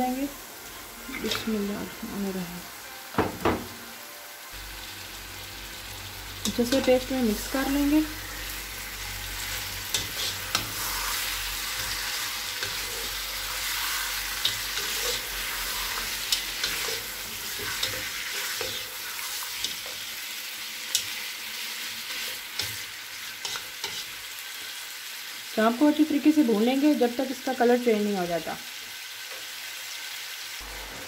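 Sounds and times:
meat sizzling in hot oil: 0.0s - 3.8s, 4.4s - 31.0s
spatula scraping against pan: 9.4s - 20.0s, 22.0s - 24.2s.

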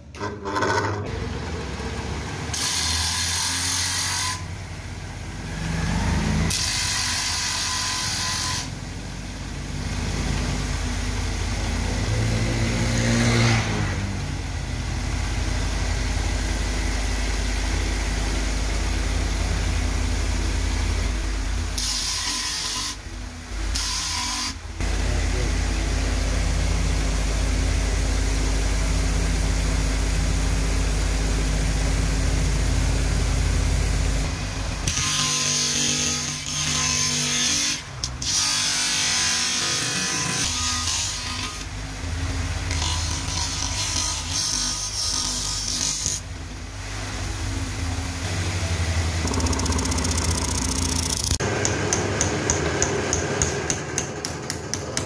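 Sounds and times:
wood grinding on abrasive disc: 0.1s - 1.2s, 49.2s - 54.1s
bench grinder motor humming: 47.6s - 54.1s.

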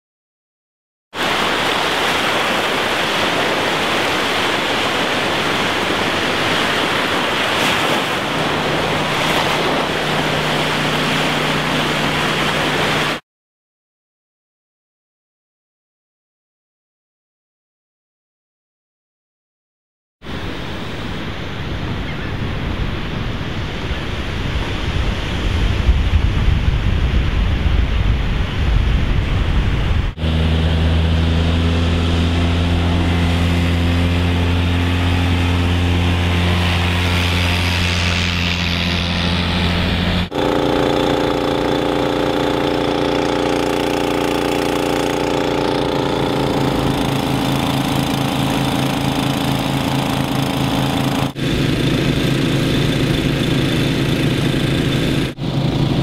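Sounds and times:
wind: 1.1s - 13.2s, 20.2s - 56.0s
engine running steadily: 1.2s - 13.2s, 29.1s - 56.0s
surf: 1.2s - 13.2s, 20.3s - 56.0s
utility vehicle engine humming: 1.3s - 13.2s, 30.1s - 56.0s.

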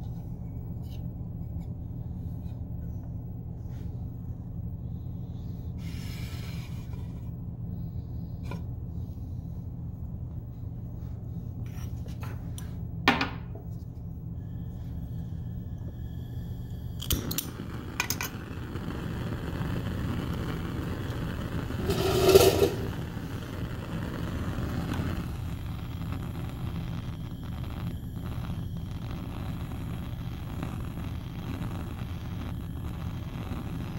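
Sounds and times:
gas flame hissing: 4.8s - 9.2s, 14.2s - 33.9s
burner igniter clicks: 17.0s - 18.4s.

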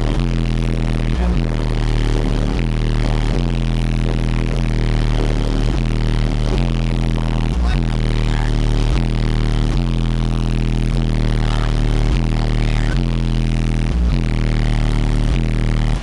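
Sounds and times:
distorted crackling: 0.0s - 16.0s
subwoofer playing bass-heavy track: 0.0s - 16.0s.

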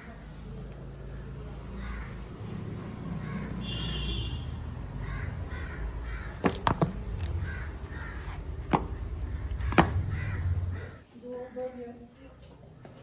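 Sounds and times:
harsh bird calls: 4.9s - 11.0s.

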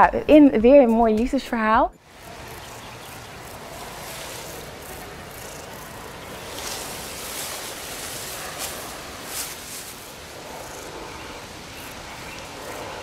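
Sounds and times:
hissing countryside ambience: 2.0s - 13.0s
loud rustles: 3.2s - 11.7s.

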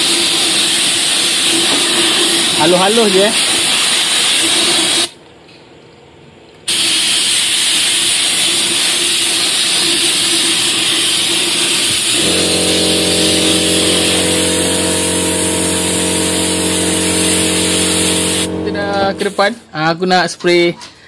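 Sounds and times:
air spray gun hissing: 11.1s - 19.6s
steady mechanical hum: 11.9s - 21.0s.

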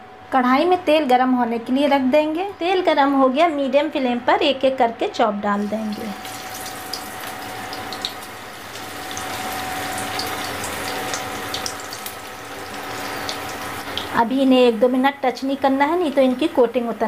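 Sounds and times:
faint steady hum: 0.0s - 17.0s
meat sizzling in hot oil: 5.6s - 17.0s.

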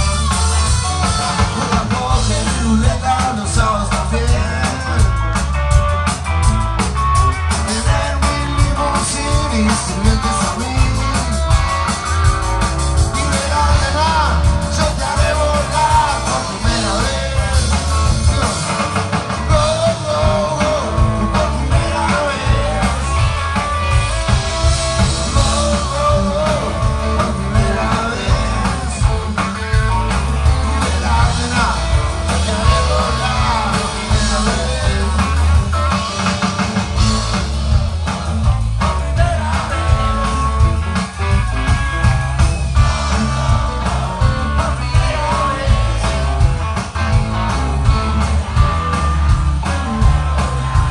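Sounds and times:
man singing: 0.0s - 5.4s, 7.4s - 12.0s, 12.9s - 36.2s, 38.8s - 41.4s, 42.7s - 49.0s
drums: 0.0s - 50.9s
electric guitars: 0.0s - 50.9s.

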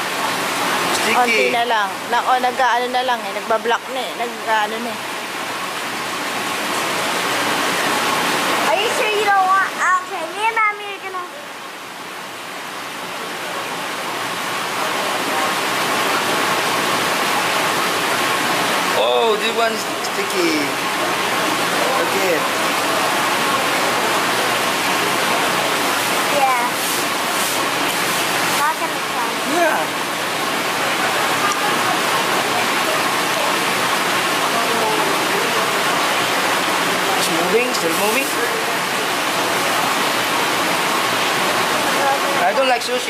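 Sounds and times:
running water hissing: 13.5s - 43.0s
steady rushing noise: 14.2s - 43.0s
faint voices: 28.4s - 42.6s.

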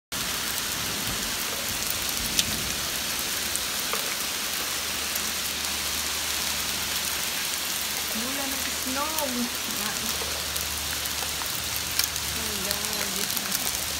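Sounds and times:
rain hissing: 0.1s - 13.9s
hailstones ticking on ground: 0.2s - 13.9s.

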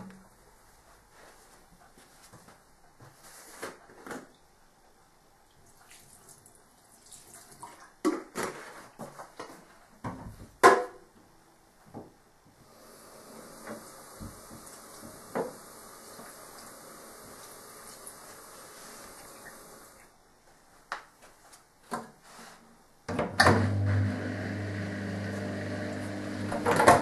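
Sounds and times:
steady hiss: 12.6s - 20.7s
appliances knocking and clattering: 26.5s - 27.0s.

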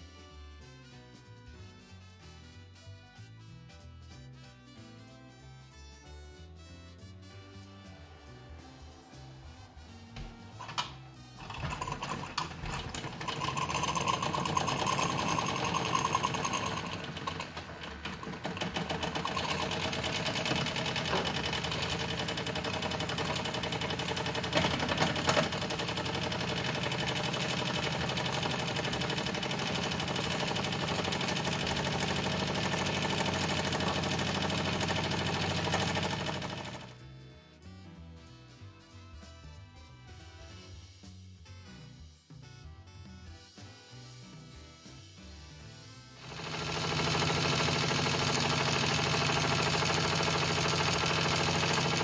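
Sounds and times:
model steam engine running: 10.5s - 36.9s, 46.2s - 52.0s.

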